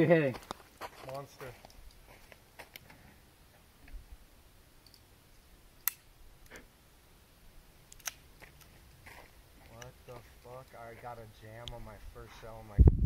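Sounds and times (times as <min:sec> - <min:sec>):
firearm action clicking: 0:05.8 - 0:06.1, 0:07.9 - 0:08.7.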